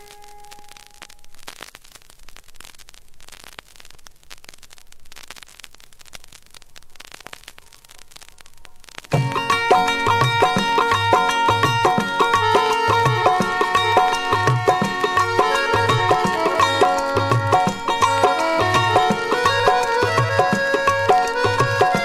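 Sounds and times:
vinyl record surface hiss: 0.0 - 22.0
song music: 9.1 - 22.0.

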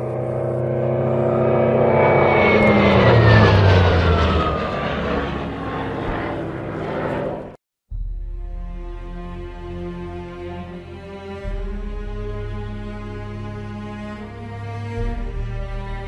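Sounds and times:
aircraft flying low past: 0.0 - 7.6.

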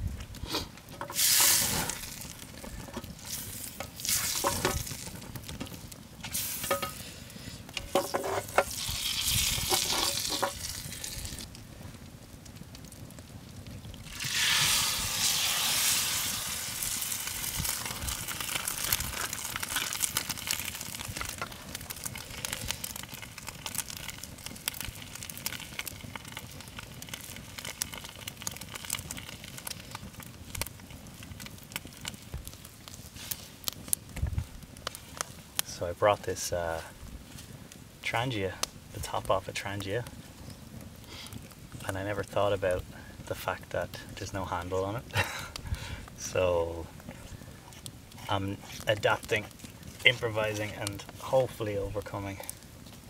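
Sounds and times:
eggs frying with crackles: 0.0 - 53.0
butter sizzling in a pan: 0.4 - 11.5, 14.0 - 34.3
spoon scraping a pan: 6.4 - 7.1, 7.8 - 8.8, 9.6 - 10.6.

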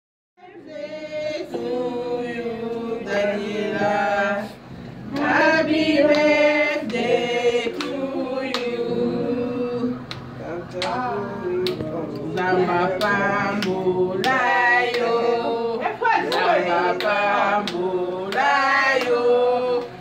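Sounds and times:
group singing a birthday song: 0.4 - 20.0
hand claps: 6.0 - 7.1, 7.7 - 8.8, 10.0 - 11.0, 11.6 - 15.1, 16.3 - 19.2.

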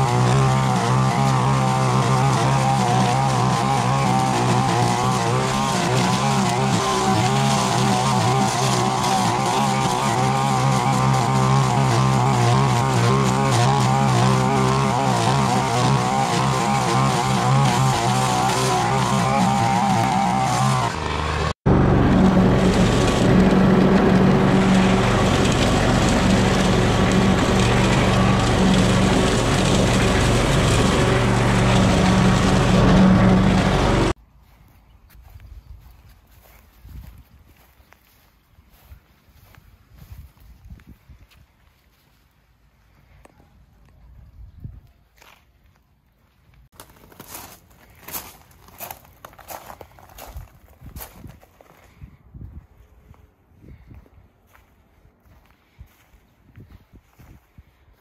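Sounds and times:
line trimmer cutting grass: 0.0 - 34.2
petrol push mower mowing: 0.0 - 34.2.

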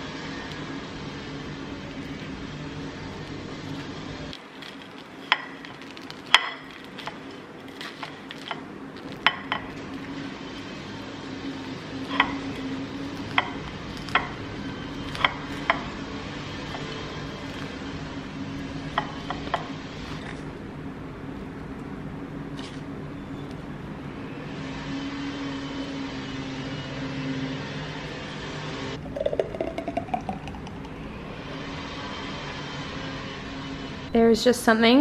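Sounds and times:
low hum: 27.6 - 34.2.

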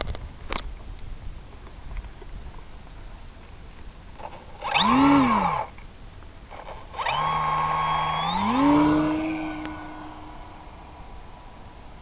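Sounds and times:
electric motor whining: 4.2 - 5.8, 6.5 - 11.5.

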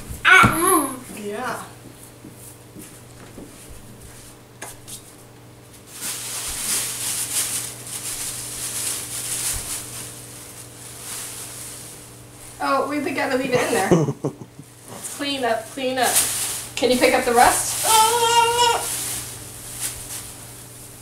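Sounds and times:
foil tinsel crinkling: 5.8 - 13.5, 14.8 - 21.0.

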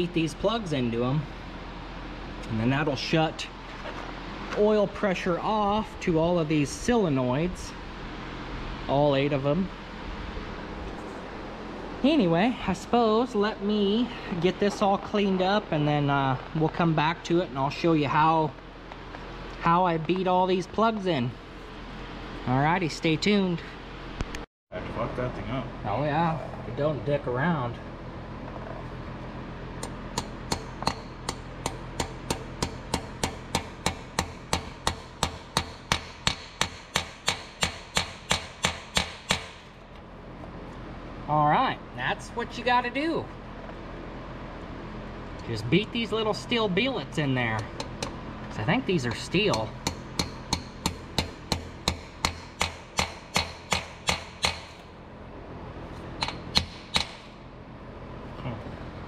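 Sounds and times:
hammer tapping metal: 29.8 - 39.7, 49.4 - 54.8, 56.2 - 57.3.

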